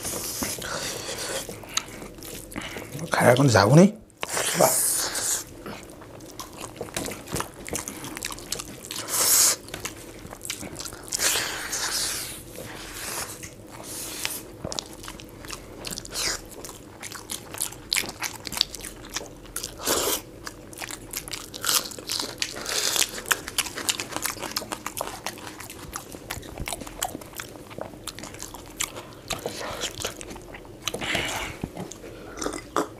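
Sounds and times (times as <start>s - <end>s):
chewing and mouth smacks: 0.1s - 3.5s, 5.4s - 32.9s.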